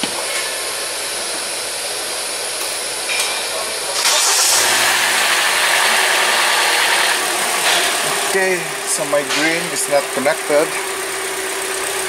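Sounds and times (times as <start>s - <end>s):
car engine starting and running: 4.0s - 12.0s.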